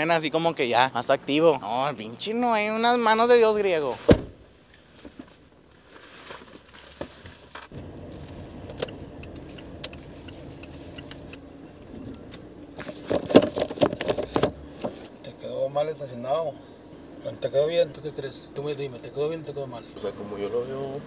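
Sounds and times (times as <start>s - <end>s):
keys jangling: 5.7s - 7.7s
car engine running: 7.6s - 21.0s.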